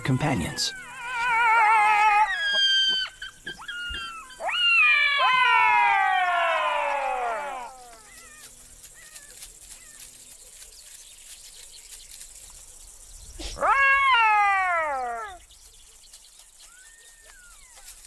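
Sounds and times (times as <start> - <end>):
buffalo calf bawling: 0.0 - 8.1
faint ticks and rustles: 6.2 - 13.7, 14.9 - 18.0.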